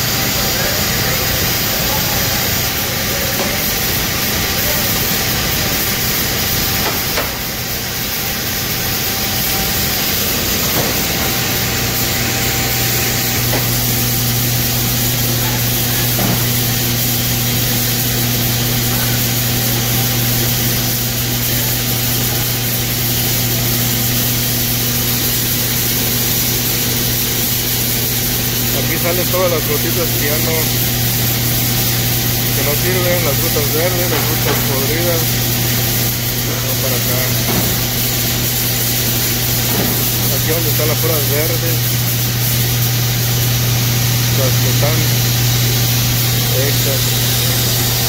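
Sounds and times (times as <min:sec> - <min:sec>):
machine hum: 0:00.0 - 0:48.0.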